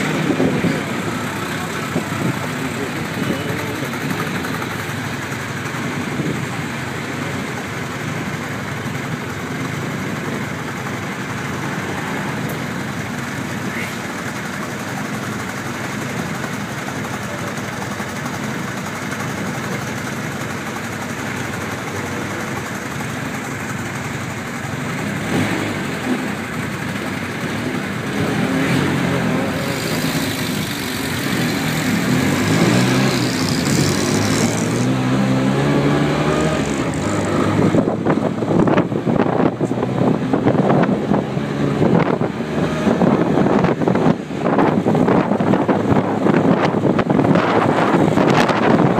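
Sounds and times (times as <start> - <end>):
city traffic: 0.0 - 48.9
wind buffeting microphone: 37.4 - 48.9.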